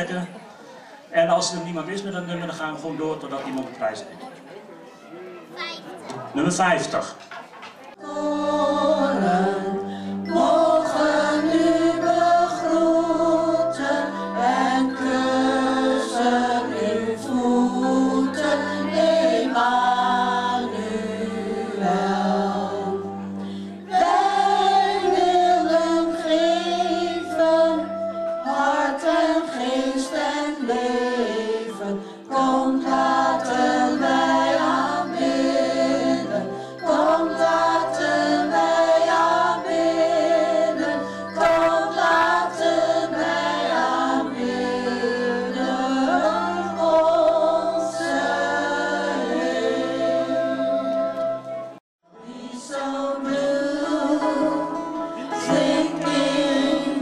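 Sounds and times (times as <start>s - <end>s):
women singing into microphones: 8.0s - 51.4s, 52.1s - 57.0s
electronic keyboard chords: 32.9s - 51.8s.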